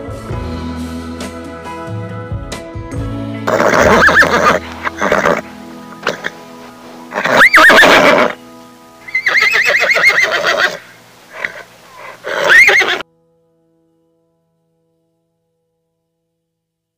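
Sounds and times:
horse neighing: 3.5 - 6.4, 7.1 - 8.4, 9.1 - 13.0.

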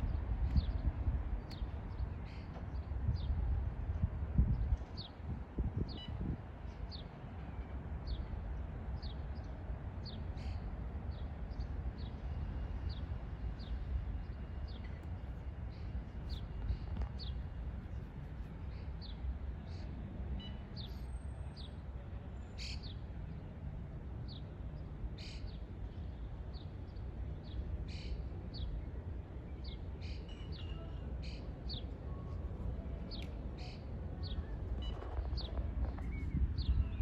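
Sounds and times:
steady low rumble: 11.1 - 37.0.

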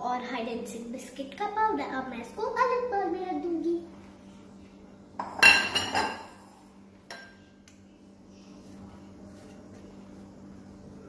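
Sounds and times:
dishes clinking: 5.2 - 6.4, 7.1 - 7.4.

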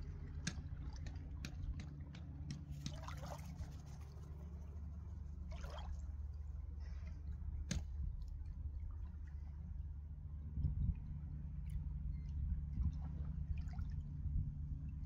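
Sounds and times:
steady low rumble: 0.0 - 15.0
water splashing and dripping: 0.4 - 4.6, 5.5 - 6.4.

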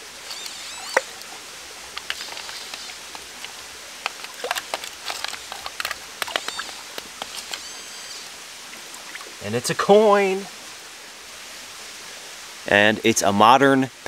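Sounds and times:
stream trickling: 0.0 - 14.0
hands splashing gravel in water: 1.9 - 7.6
stones knocking: 2.0 - 7.6.

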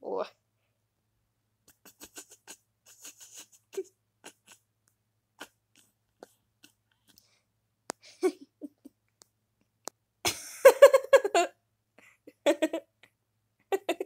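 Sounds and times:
person laughing: 1.7 - 4.6, 8.0 - 9.0, 10.3 - 11.6, 12.3 - 13.1, 13.7 - 14.0.

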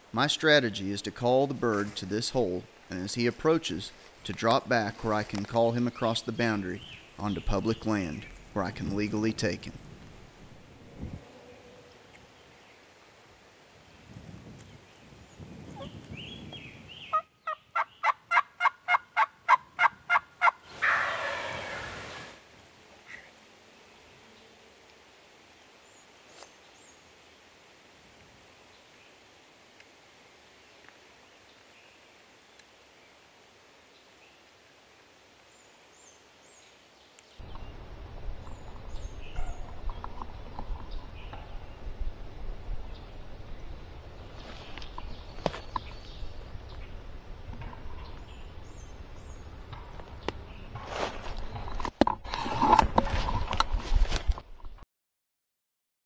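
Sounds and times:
low rumble on microphone: 8.1 - 12.2
turkey call yelps: 17.1 - 22.2
turkey gobbling: 17.1 - 22.3.

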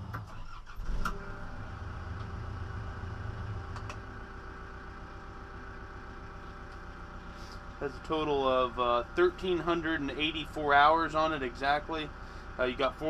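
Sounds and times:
diesel engine running: 0.0 - 13.0
steady whine: 1.1 - 13.0
clicks: 3.7 - 4.0.

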